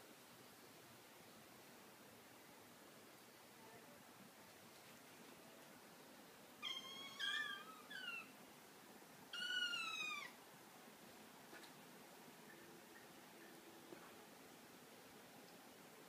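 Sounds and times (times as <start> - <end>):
kitten meowing: 6.6 - 8.3, 9.3 - 10.4.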